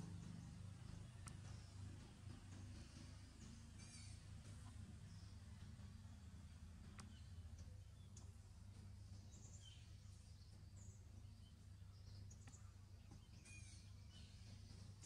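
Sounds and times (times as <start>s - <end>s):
steady low hum: 0.0s - 15.0s
faint bird chirps: 2.6s - 5.6s, 9.2s - 15.0s.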